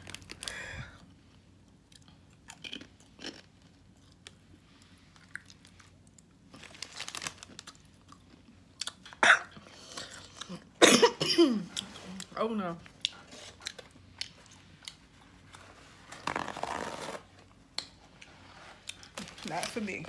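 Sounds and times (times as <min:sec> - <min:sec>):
potato chip crunching: 0:01.9 - 0:04.4, 0:05.2 - 0:09.1.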